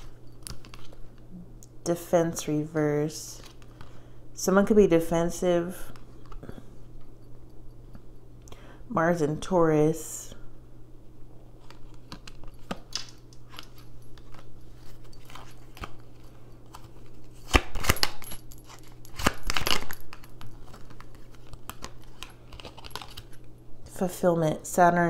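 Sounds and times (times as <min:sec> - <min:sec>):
cards being shuffled: 0:00.0 - 0:01.2, 0:11.6 - 0:23.4
faint low hum: 0:00.0 - 0:25.0.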